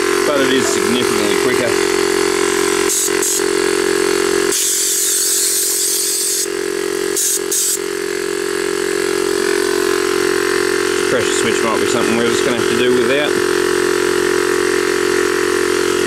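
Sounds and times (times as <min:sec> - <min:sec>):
air compressor droning: 0:00.0 - 0:16.0
air nozzle hissing: 0:02.9 - 0:03.4, 0:04.5 - 0:06.5, 0:07.1 - 0:07.8.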